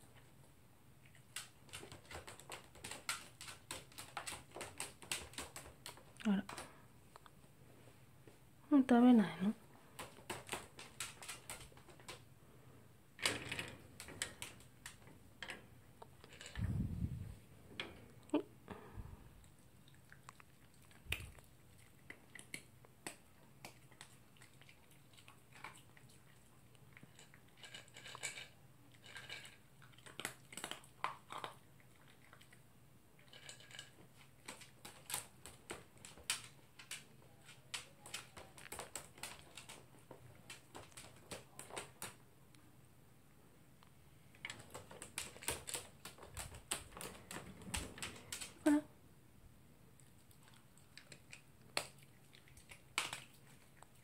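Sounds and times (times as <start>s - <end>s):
dog crunching dry kibble: 1.0s - 7.3s, 9.9s - 12.3s, 19.4s - 42.2s, 44.3s - 48.8s, 50.0s - 54.0s
kibble clicking against bowl: 1.2s - 6.7s, 10.0s - 12.2s, 27.0s - 32.4s, 33.2s - 42.2s, 44.4s - 48.8s, 51.0s - 53.9s.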